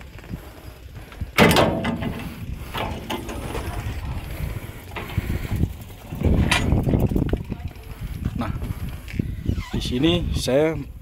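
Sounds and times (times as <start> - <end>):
latch and hinge clicking and rattling: 1.4 - 3.4
metal cover clanking: 1.4 - 3.4.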